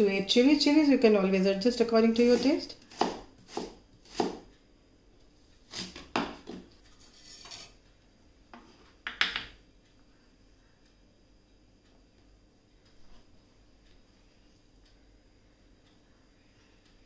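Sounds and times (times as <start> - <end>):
knife knocking on chopping board: 8.5 - 9.5.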